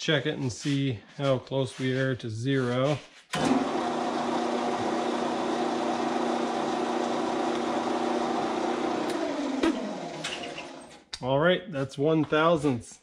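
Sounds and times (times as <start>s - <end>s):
lathe spinning down: 3.4s - 11.0s
metal lathe running: 3.4s - 11.0s.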